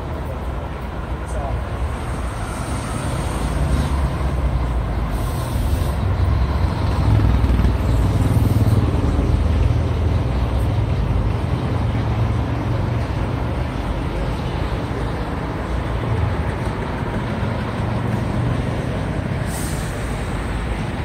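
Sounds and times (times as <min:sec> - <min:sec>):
street traffic rumble: 0:00.0 - 0:21.0.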